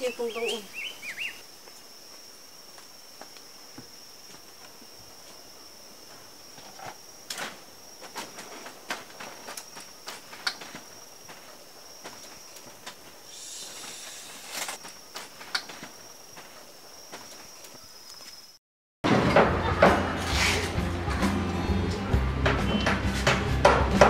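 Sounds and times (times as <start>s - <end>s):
people moving clicks and scuffs: 6.1s - 18.4s
high-pitched insect drone: 13.3s - 14.8s.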